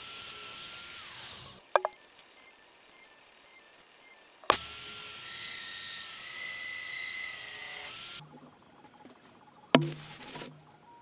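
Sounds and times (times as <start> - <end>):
drill whining cutting metal: 0.0 - 1.6, 4.5 - 8.2.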